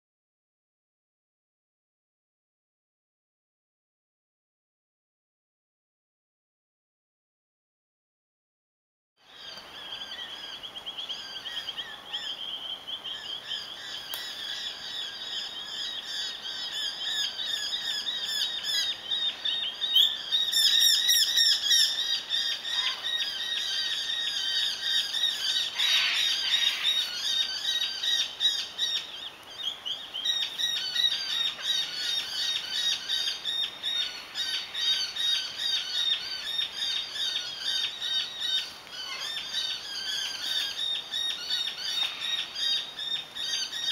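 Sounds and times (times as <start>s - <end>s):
flock of small birds chirping: 9.2s - 43.9s.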